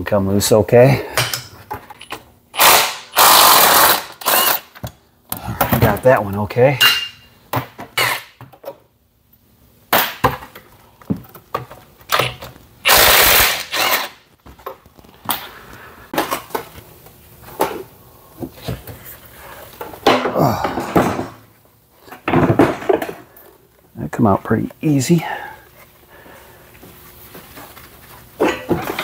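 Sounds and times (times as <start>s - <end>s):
power tool burst: 2.6s - 4.7s, 12.8s - 14.2s.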